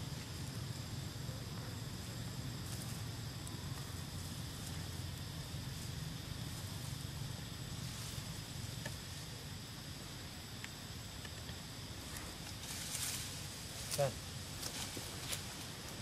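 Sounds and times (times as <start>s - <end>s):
faint ticks: 8.6s - 9.2s, 10.5s - 13.2s.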